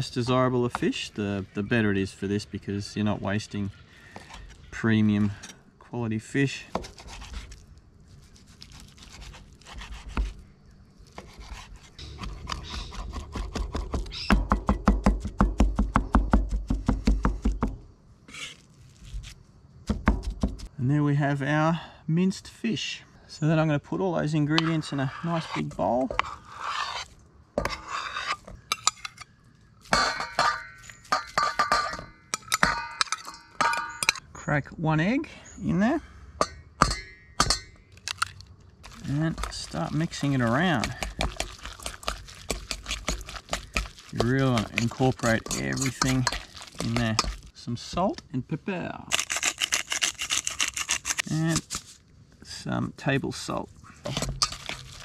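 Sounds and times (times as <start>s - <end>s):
fork and plate clinking on bowl: 45.2s - 47.4s.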